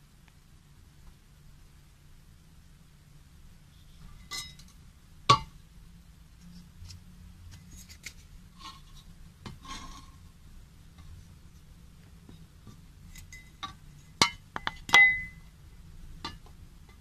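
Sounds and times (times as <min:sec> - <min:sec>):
metal clinking and rubbing: 0:04.0 - 0:04.8.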